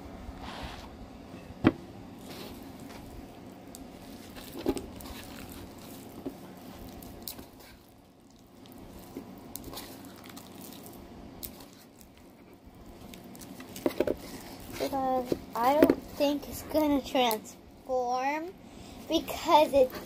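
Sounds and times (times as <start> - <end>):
slime squishing: 2.1 - 17.4
foam beads clicking and crackling: 2.2 - 16.5.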